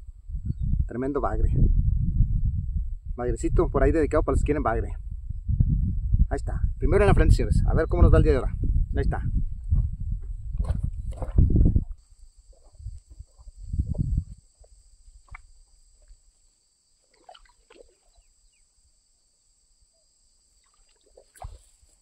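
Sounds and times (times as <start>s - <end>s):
water drips and splashes: 17.0s - 18.2s, 20.6s - 21.9s.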